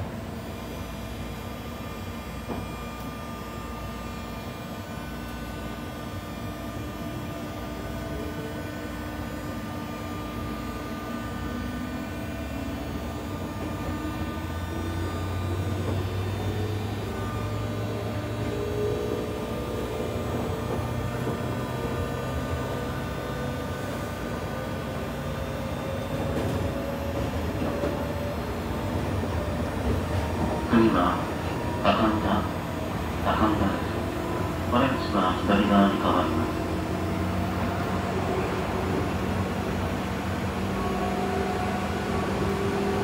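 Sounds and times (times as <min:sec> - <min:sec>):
electric train motor whine: 0:00.0 - 0:43.0.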